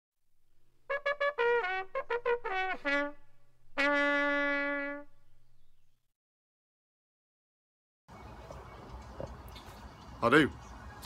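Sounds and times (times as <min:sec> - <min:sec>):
brass fanfare: 0:00.9 - 0:05.2.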